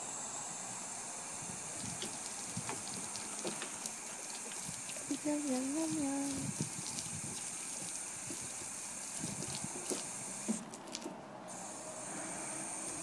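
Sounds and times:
garden hose spraying water: 0:00.0 - 0:13.0
splashes and clicks: 0:01.7 - 0:11.2.

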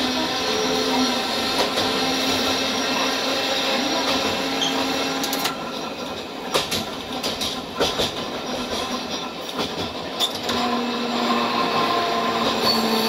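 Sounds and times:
tram humming and rolling: 0:00.0 - 0:13.0
wheels knocking on track: 0:06.4 - 0:10.2.

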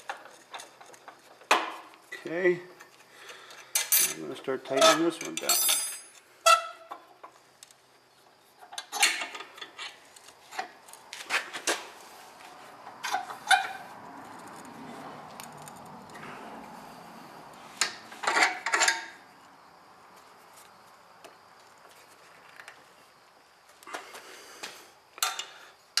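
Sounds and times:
metal clinks and knocks: 0:04.8 - 0:06.2.

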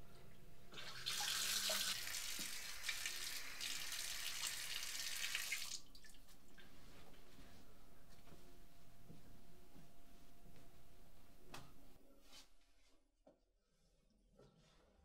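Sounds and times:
tap water running into sink: 0:00.7 - 0:06.1.

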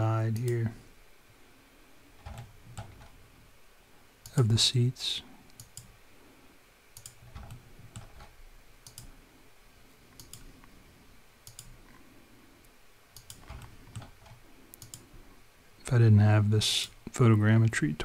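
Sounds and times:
computer mouse clicking: 0:00.3 - 0:00.6, 0:02.2 - 0:03.2, 0:05.5 - 0:05.9, 0:06.9 - 0:09.2, 0:10.1 - 0:10.7, 0:11.4 - 0:12.0, 0:13.1 - 0:15.1.

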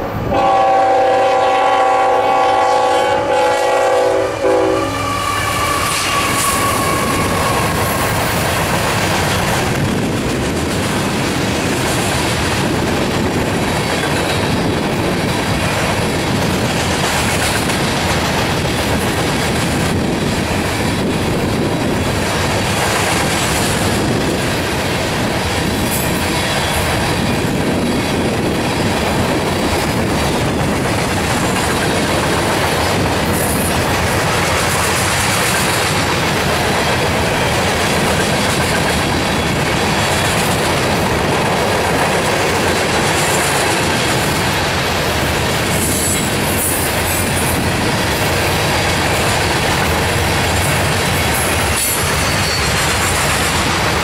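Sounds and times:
freight train rolling past: 0:00.0 - 0:54.0
high wheel squeals: 0:04.7 - 0:08.2, 0:51.7 - 0:53.4
clickety-clack over rail joints: 0:05.7 - 0:54.0.

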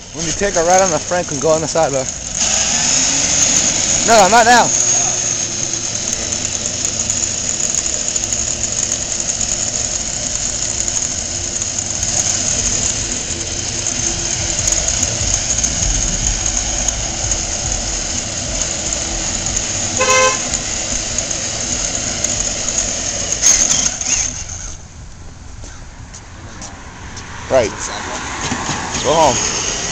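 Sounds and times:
road noise: 0:00.0 - 0:29.9
rushing wind: 0:09.8 - 0:29.9
car horn beep: 0:20.0 - 0:20.4.

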